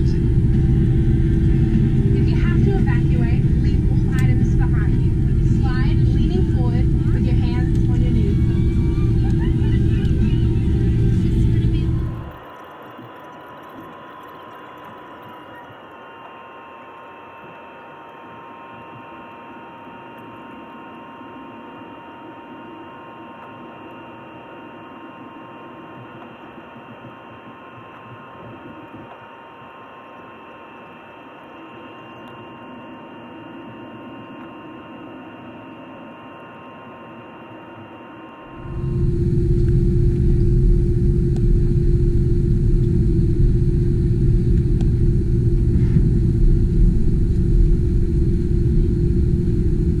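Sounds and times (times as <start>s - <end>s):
loud low takeoff rumble: 0.0s - 12.4s, 38.5s - 50.0s
aircraft cabin hum: 0.0s - 13.2s, 38.5s - 50.0s
steady whining tones: 0.0s - 50.0s.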